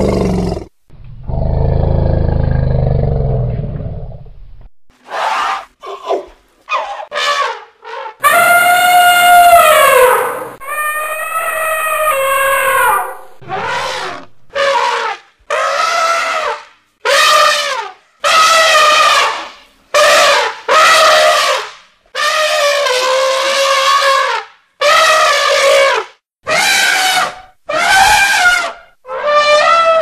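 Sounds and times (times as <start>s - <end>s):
elephant trumpeting: 6.7s - 19.4s, 26.5s - 30.0s.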